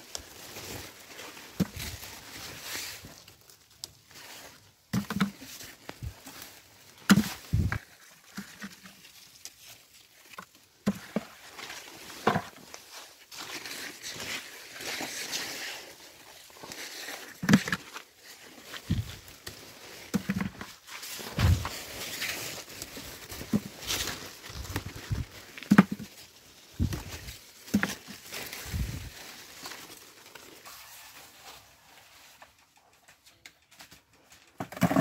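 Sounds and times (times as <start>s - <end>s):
leaves and vines rustling: 0.0s - 35.0s
cucumbers knocking into plastic bucket: 25.1s - 26.1s.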